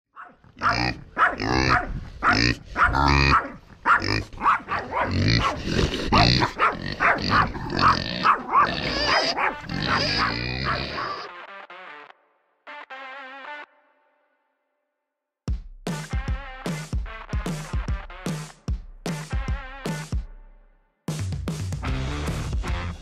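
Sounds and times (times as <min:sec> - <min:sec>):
pigs squealing grunts: 0:00.5 - 0:11.3.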